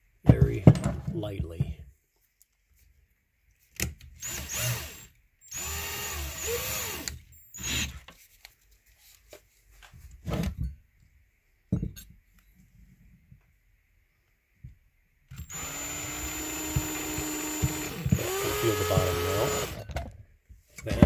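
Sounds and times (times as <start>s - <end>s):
electric drill bursts: 4.2s - 8.0s, 15.4s - 19.8s.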